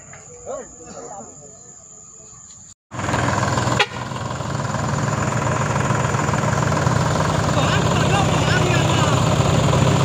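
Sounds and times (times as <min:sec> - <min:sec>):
tractor diesel engine running: 0:02.9 - 0:10.0.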